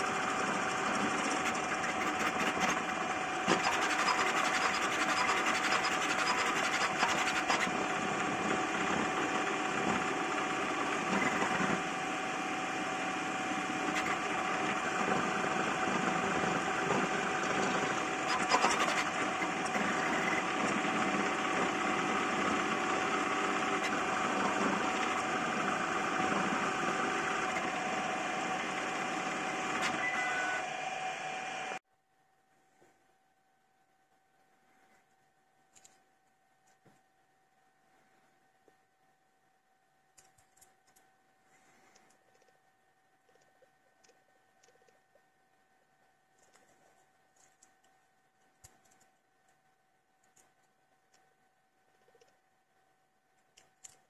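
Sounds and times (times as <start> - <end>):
printer motors buzzing and rattling: 0.0 - 31.8.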